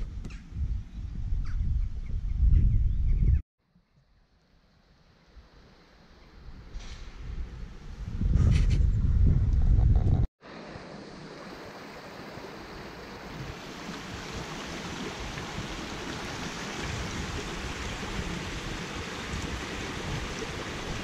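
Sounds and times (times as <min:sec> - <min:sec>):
brook flowing over stones: 0:10.5 - 0:21.0.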